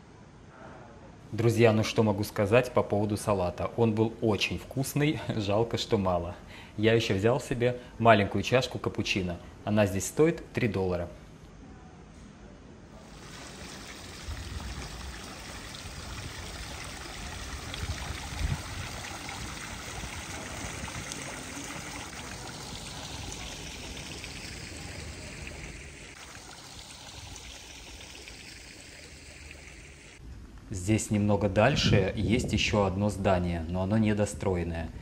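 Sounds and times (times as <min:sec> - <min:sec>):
rushing running water: 0:13.0 - 0:30.2.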